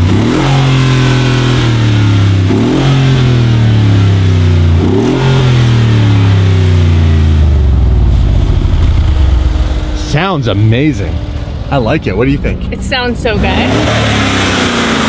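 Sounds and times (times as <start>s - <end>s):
engine revving: 0.0s - 15.0s
engine idling: 5.5s - 13.8s.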